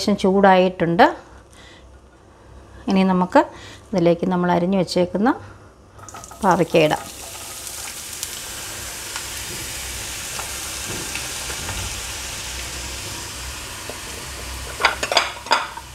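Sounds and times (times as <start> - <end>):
vegetables deep-frying in oil: 6.0 - 15.9.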